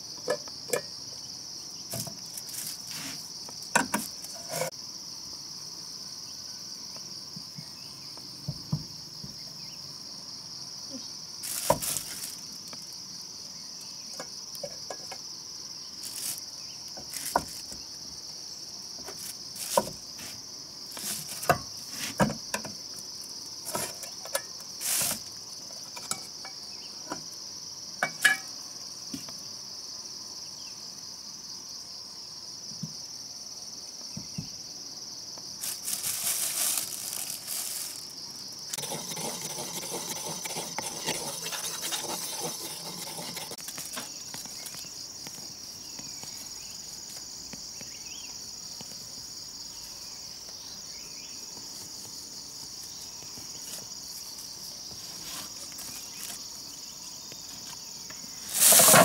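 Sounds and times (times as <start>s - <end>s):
high-pitched insect chorus: 0.0s - 59.0s
brush stirring paint in cup: 38.7s - 43.7s.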